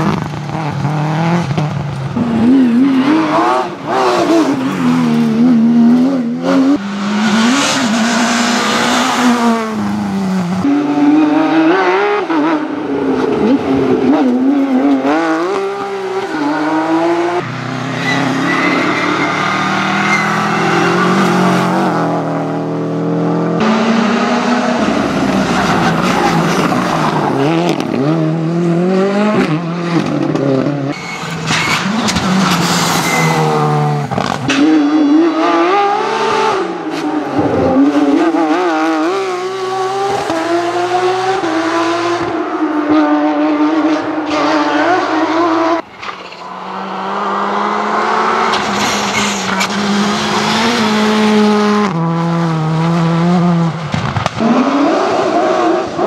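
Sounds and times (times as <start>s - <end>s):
rally car engines revving: 0.0s - 56.0s
tyres squealing: 17.8s - 21.4s.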